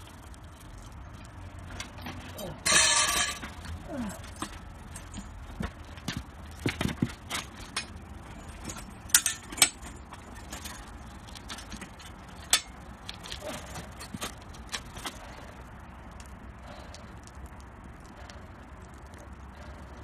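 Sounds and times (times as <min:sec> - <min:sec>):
metal tools clicking and knocking: 0:01.8 - 0:15.2.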